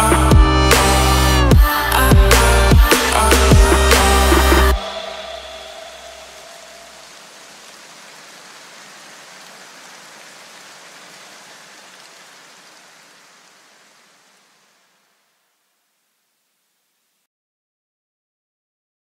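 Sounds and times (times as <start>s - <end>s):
steady hiss of noise: 4.8s - 17.2s.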